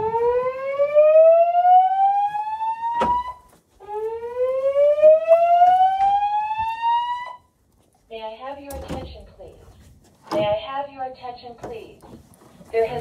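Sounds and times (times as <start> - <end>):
rising whoop alarm tone: 0.0 - 7.4.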